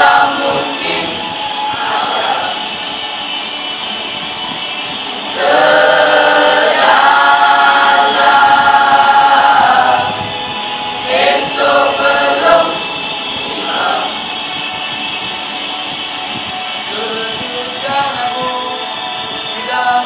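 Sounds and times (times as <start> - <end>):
youth choir singing unaccompanied: 0.0 - 3.3, 5.1 - 14.4.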